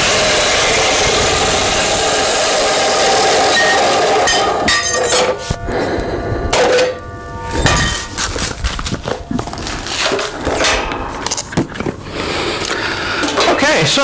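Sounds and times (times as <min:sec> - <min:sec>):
metal clanks and knocks: 0:03.6 - 0:12.0.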